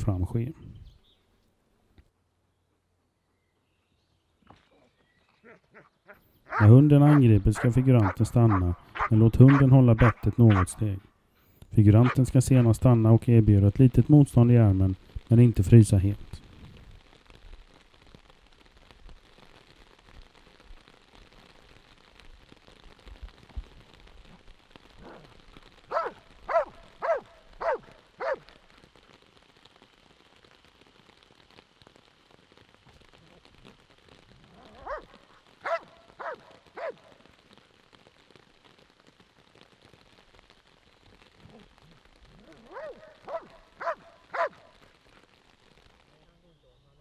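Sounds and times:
dog barking sharply: 0:06.5 - 0:10.8, 0:25.9 - 0:28.4, 0:34.8 - 0:37.0, 0:42.7 - 0:44.7.

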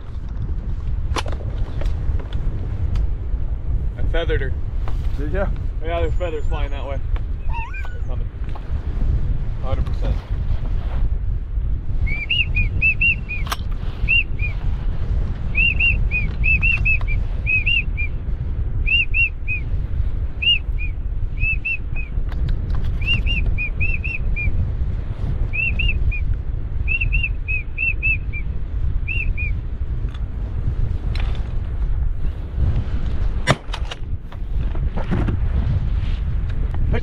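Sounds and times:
wind rumbling on microphone: 0:00.0 - 0:37.0
whistled duck call peeps: 0:07.4 - 0:08.2.

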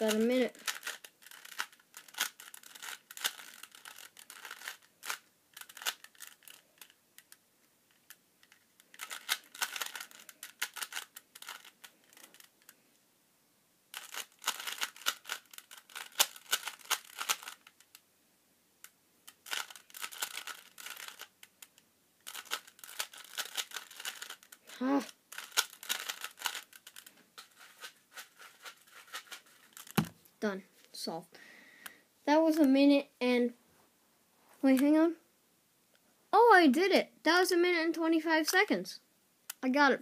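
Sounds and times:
puzzle cube layers clicking: 0:00.0 - 0:12.8, 0:14.0 - 0:17.9, 0:18.8 - 0:30.1.

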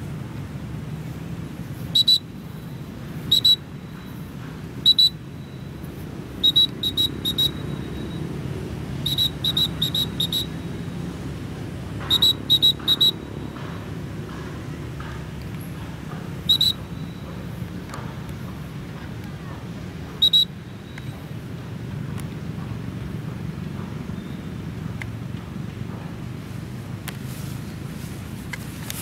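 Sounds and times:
high-pitched whistle-like pips: 0:01.9 - 0:08.3, 0:09.0 - 0:10.7, 0:12.0 - 0:13.5, 0:16.4 - 0:17.4, 0:20.2 - 0:21.2.

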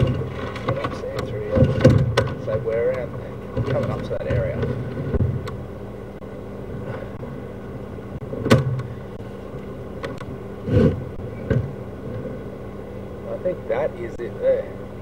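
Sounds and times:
short thumps and knocks: 0:00.0 - 0:05.6, 0:08.4 - 0:08.9
low machine hum: 0:00.0 - 0:15.0.

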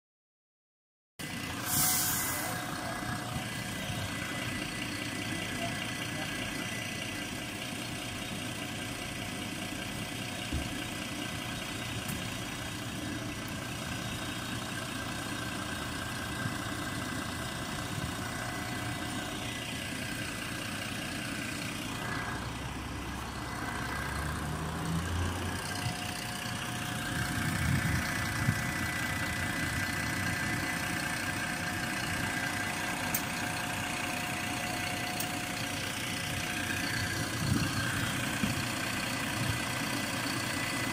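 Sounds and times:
bus diesel engine idling: 0:01.2 - 0:40.9
gearbox high whine: 0:01.4 - 0:05.8, 0:16.2 - 0:40.9.

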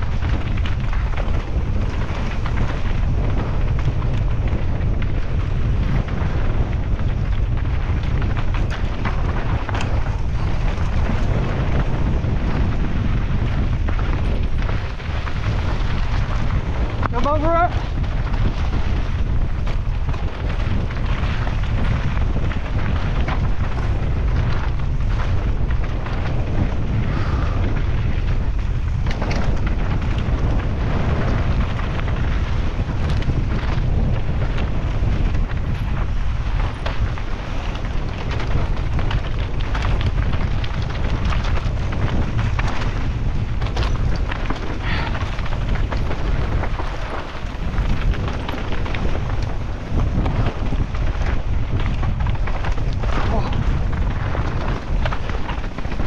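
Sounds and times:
bike knocking and rattling: 0:00.0 - 0:56.0
mountain bike rumbling downhill: 0:00.0 - 0:56.0
wind buffeting microphone: 0:00.0 - 0:56.0.

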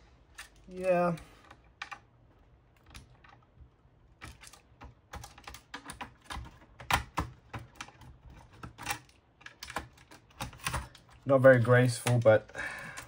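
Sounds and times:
hard plastic clicks and taps: 0:04.2 - 0:11.2.

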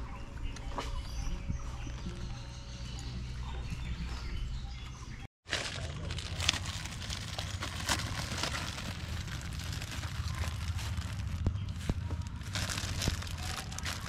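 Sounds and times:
plastic bread wrapper crinkling: 0:05.5 - 0:14.0
steady low rumble: 0:06.0 - 0:14.0.

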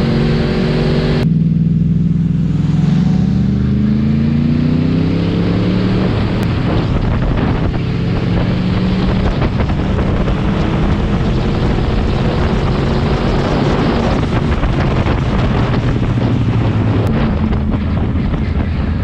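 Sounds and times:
motorcycle engine revving: 0:00.0 - 0:19.0
wind noise on microphone: 0:04.1 - 0:19.0.

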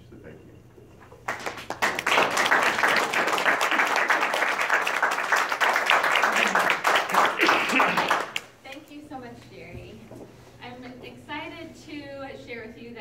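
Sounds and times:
audience applauding: 0:01.2 - 0:08.5.

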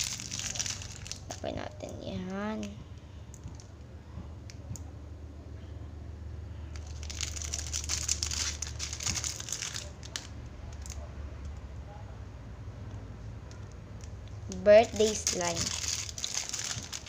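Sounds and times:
plastic wrapper crinkling: 0:00.0 - 0:02.7, 0:06.7 - 0:11.0, 0:14.0 - 0:17.0
steady low hum: 0:00.0 - 0:17.0.

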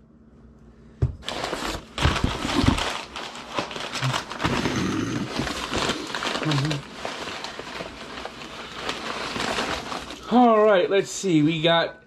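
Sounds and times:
packing material rustling in box: 0:01.2 - 0:10.7.

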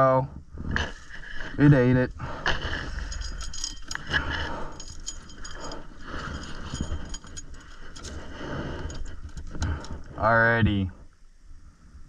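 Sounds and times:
metal chain clinking and knocking: 0:02.5 - 0:10.1.

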